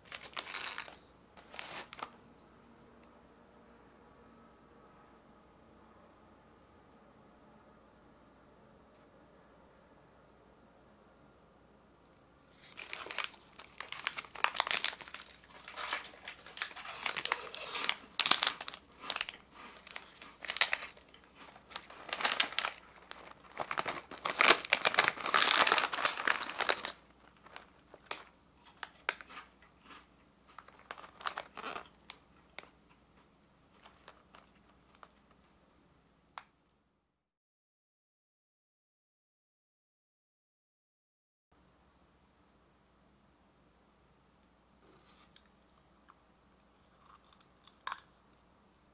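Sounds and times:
plastic snack packets crackling: 0:00.0 - 0:02.2, 0:12.5 - 0:32.8, 0:33.7 - 0:35.3.

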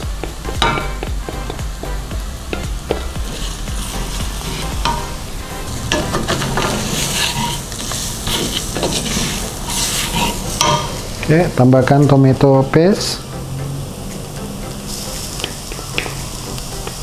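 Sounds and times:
food sizzling in oil: 0:00.0 - 0:17.0
wooden spatula scraping pan: 0:02.9 - 0:11.4.

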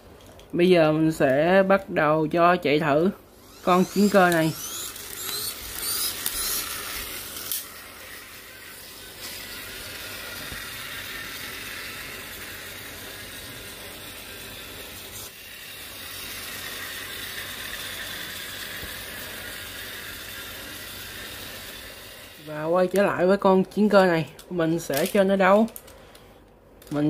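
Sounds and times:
toy car flywheel whirring: 0:02.8 - 0:23.3, 0:24.8 - 0:26.0.

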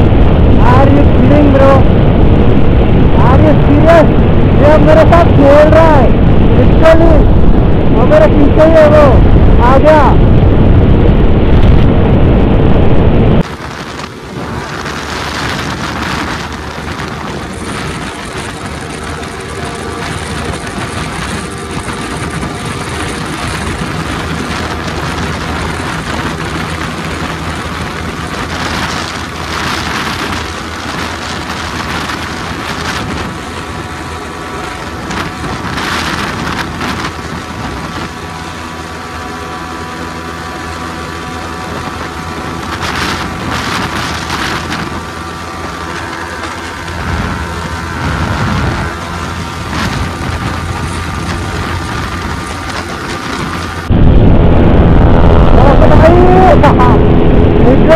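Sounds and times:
wind rushing over microphone: 0:00.0 - 0:57.9
motorcycle engine at high revs: 0:13.4 - 0:53.9.

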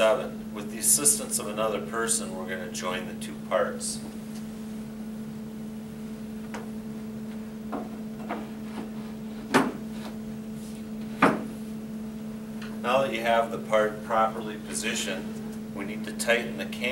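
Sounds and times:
steady low hum: 0:00.0 - 0:16.9.

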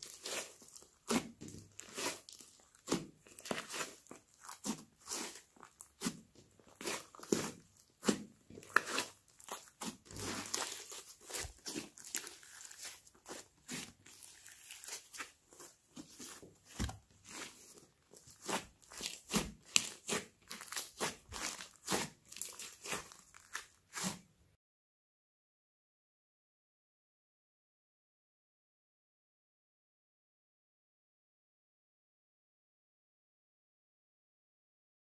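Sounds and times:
slime clicking and crackling: 0:00.0 - 0:24.2.

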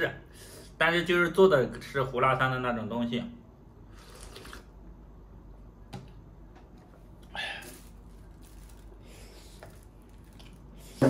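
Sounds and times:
faint eating sounds: 0:03.8 - 0:05.0, 0:07.1 - 0:11.0.

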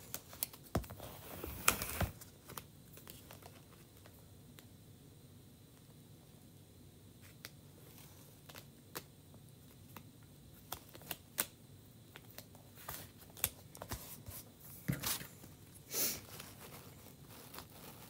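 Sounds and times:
plastic crinkling: 0:16.2 - 0:18.0.

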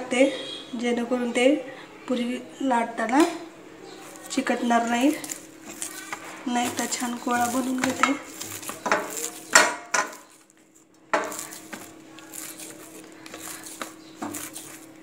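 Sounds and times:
dough kneaded on steel plate: 0:03.9 - 0:15.0.

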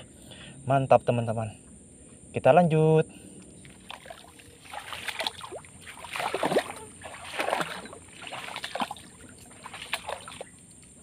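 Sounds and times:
water sloshing and splashing: 0:03.6 - 0:11.0.

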